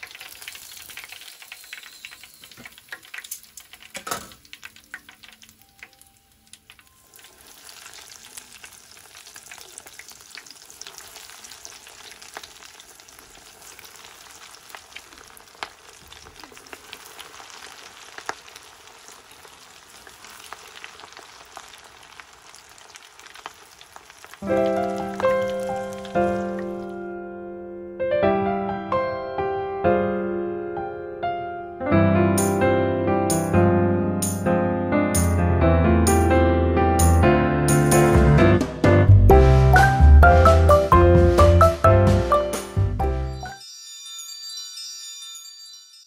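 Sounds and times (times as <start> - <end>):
shrimp deep-frying in oil: 0.0 - 27.0
piano music: 24.4 - 43.8.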